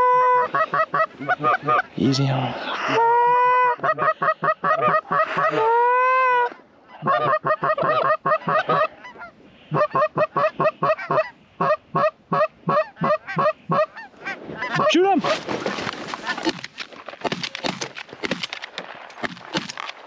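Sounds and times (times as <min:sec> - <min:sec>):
goose call clucks: 0:00.0 - 0:01.9, 0:02.8 - 0:15.0.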